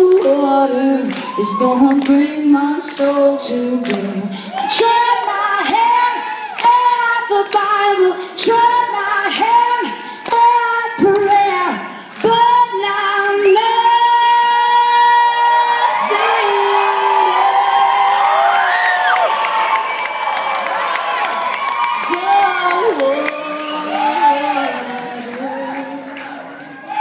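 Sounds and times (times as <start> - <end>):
woman singing solo: 0.0 - 17.4, 22.0 - 26.4
tambourine jingles: 0.1 - 4.2.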